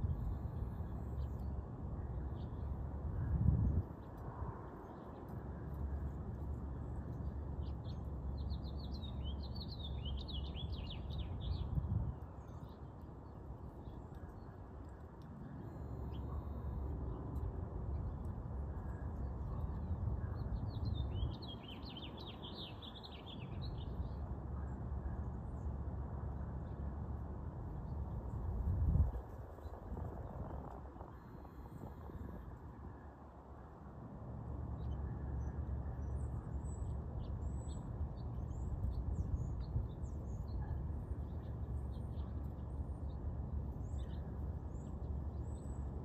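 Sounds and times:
songbird singing: 4.8s - 25.8s, 34.7s - 46.0s
steady low rumble: 23.0s - 46.0s.

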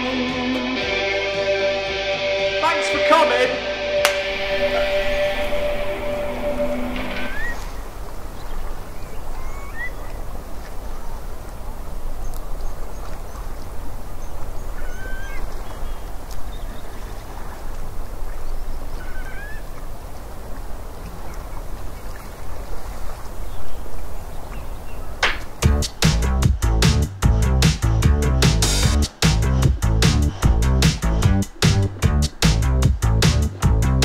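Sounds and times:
band music with steady beat: 0.0s - 5.8s, 25.6s - 34.0s
upward-gliding bird calls: 4.2s - 10.2s, 14.7s - 17.6s, 18.3s - 19.9s.

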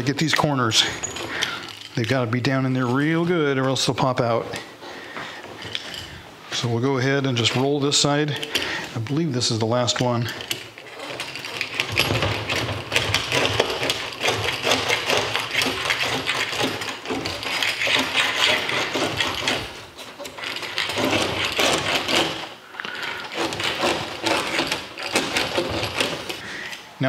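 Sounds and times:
spline roller crunching rattle: 10.2s - 26.4s.

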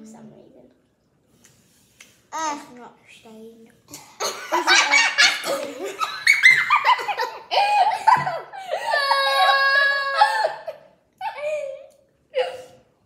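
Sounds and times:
girls laughing: 4.2s - 12.6s
high-pitched squeal of laughter: 6.0s - 11.8s.

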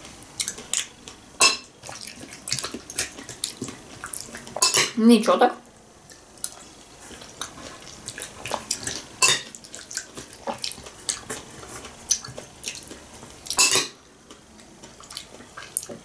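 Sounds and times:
wet chewing: 0.4s - 4.7s, 6.0s - 16.0s.

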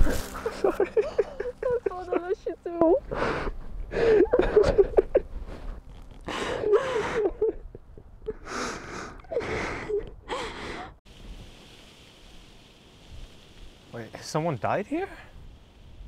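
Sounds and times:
woman sobbing: 0.4s - 5.2s, 6.3s - 11.0s.

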